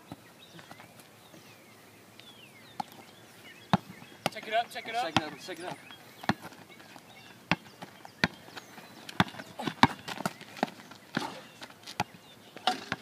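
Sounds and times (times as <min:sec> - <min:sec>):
basketball bouncing on asphalt: 0:03.7 - 0:13.0.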